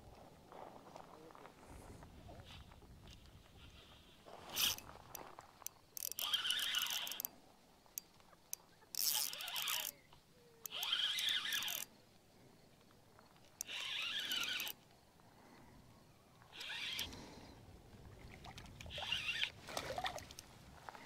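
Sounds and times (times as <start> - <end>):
fishing reel whirring: 3.7 - 4.9, 6.0 - 7.3, 8.9 - 10.0, 10.6 - 11.9, 13.6 - 14.8, 16.5 - 17.6, 18.8 - 19.6.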